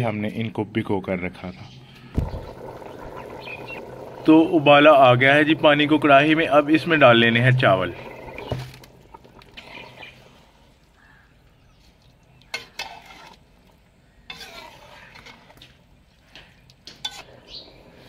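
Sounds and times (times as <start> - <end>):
water bubbling: 2.2 - 10.6
metal spoon stirring: 12.4 - 17.7.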